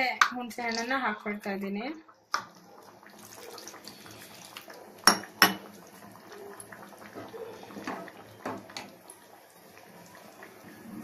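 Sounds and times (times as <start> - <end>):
liquid pouring into pot: 2.3 - 11.0.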